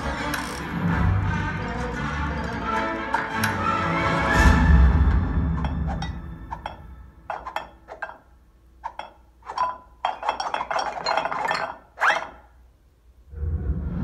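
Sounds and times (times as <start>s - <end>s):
ceramic gnomes clinking and clattering: 1.6s - 3.8s, 5.5s - 12.6s.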